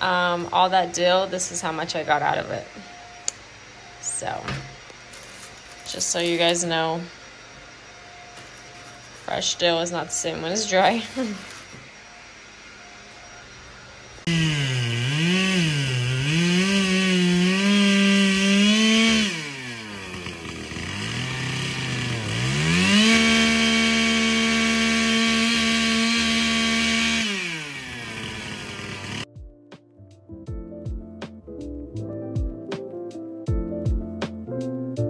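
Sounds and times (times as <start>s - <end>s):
chainsaw cutting branches: 5.0s - 6.6s, 10.7s - 11.9s, 14.2s - 29.3s.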